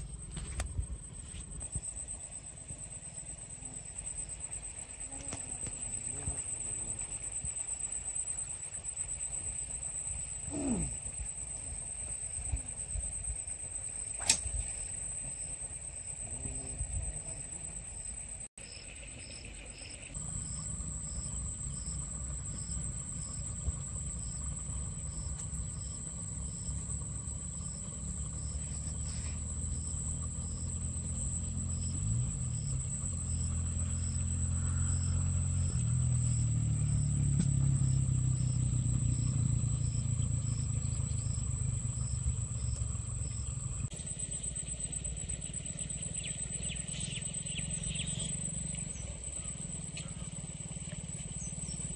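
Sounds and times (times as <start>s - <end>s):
faint pulsing chirp: 0.0s - 51.9s
high-pitched insect drone: 0.0s - 51.9s
low rumble: 20.2s - 43.9s.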